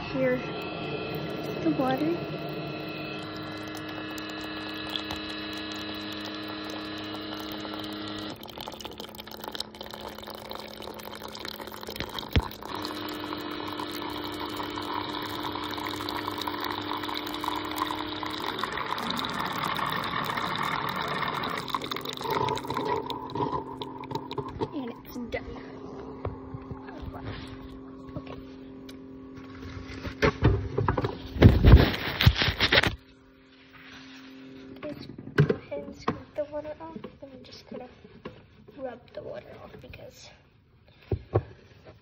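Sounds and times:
coffee maker pump hum: 0:00.0 - 0:39.9
water pouring into a mug: 0:00.5 - 0:27.8.

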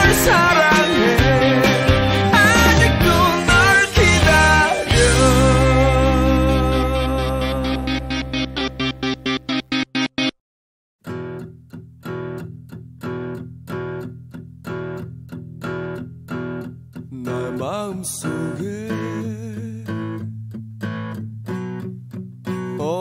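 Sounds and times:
person singing: 0:00.0 - 0:08.9, 0:17.1 - 0:20.1, 0:22.7 - 0:23.0
guitar chords strummed: 0:00.0 - 0:10.4, 0:11.0 - 0:23.0.

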